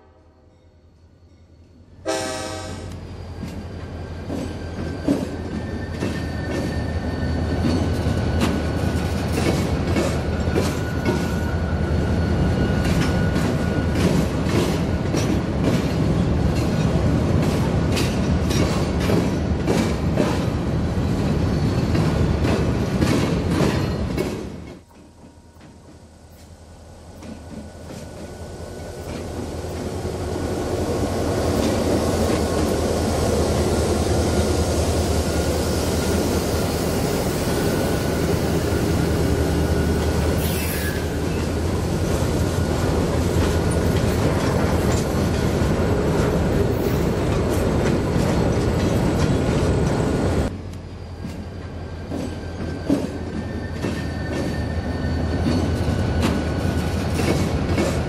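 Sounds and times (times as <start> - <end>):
train cars rolling on rails: 0.6 - 58.0
diesel locomotive engine rumble: 1.8 - 58.0
high wheel squeal: 2.9 - 9.0, 33.6 - 41.6, 50.1 - 57.2
wheels clicking over rail joints: 41.2 - 50.0, 55.4 - 58.0.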